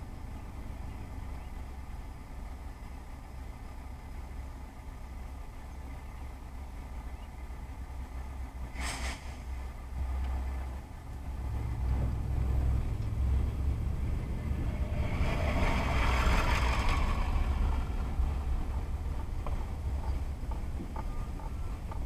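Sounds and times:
car engine and road rumble: 0.0s - 22.0s
tyre hiss: 8.7s - 9.6s.

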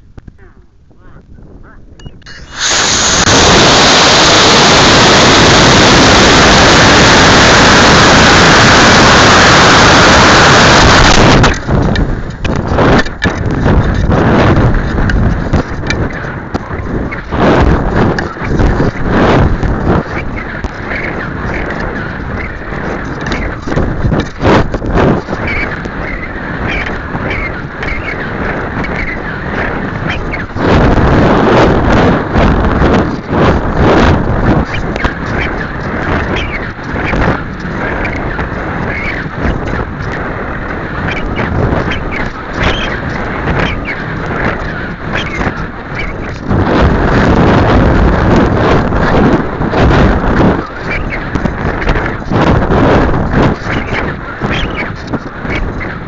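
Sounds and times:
wind buffets: 0.0s - 56.0s
rocket motor rushing noise: 2.3s - 52.1s.

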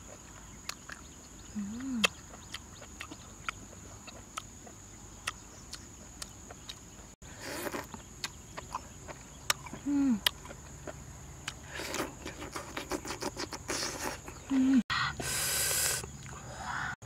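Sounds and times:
insect drone: 0.0s - 17.0s
chewing and lip smacks: 0.1s - 14.5s
person humming: 1.6s - 2.1s, 9.8s - 10.3s, 13.9s - 16.0s.

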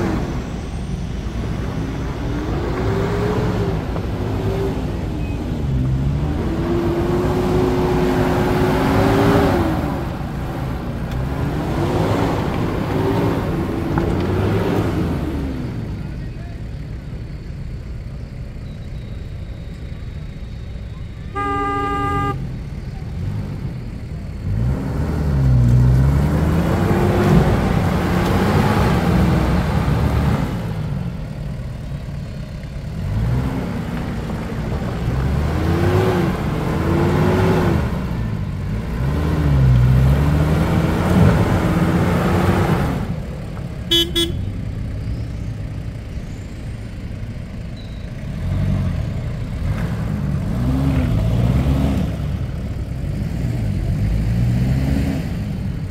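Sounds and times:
engine revving: 0.0s - 16.1s, 21.3s - 32.2s, 32.8s - 44.8s, 48.2s - 55.9s
car horn toot: 21.3s - 22.6s, 43.9s - 44.6s.

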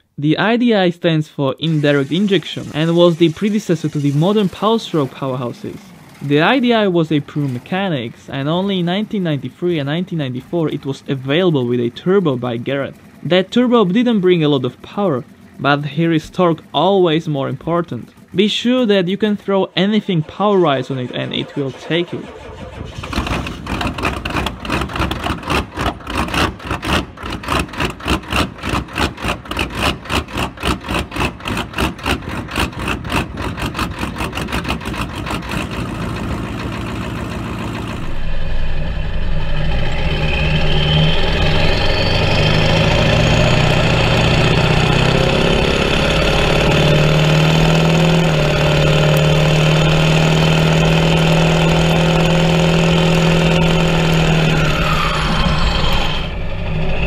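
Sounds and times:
diesel engine pulsing: 1.5s - 57.0s
engine drone with high whistle: 7.8s - 26.4s, 35.7s - 57.0s.

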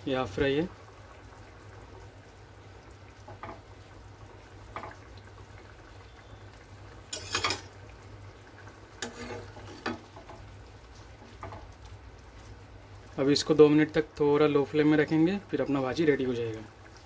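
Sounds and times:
gravy simmering: 0.0s - 17.0s
spatula scraping pan: 7.1s - 7.7s, 9.0s - 10.3s.

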